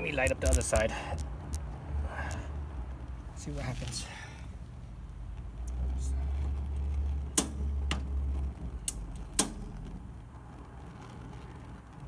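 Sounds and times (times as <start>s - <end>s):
stove igniter clicking: 7.3s - 8.2s, 8.8s - 10.1s.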